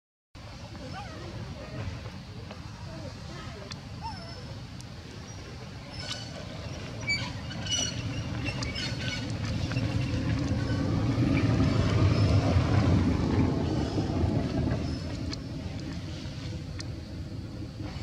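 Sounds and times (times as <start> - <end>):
passing vehicle rumble: 5.7 - 18.0.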